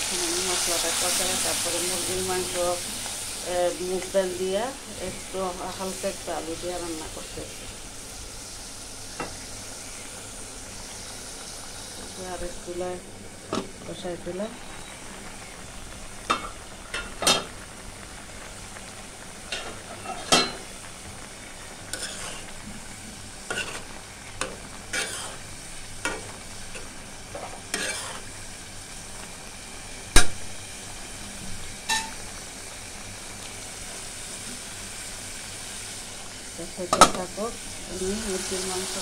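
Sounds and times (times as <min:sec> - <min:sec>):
paste sizzling in oil: 0:00.0 - 0:39.0
spatula scraping and knocking pan: 0:21.9 - 0:22.6, 0:23.5 - 0:25.4, 0:26.0 - 0:28.3.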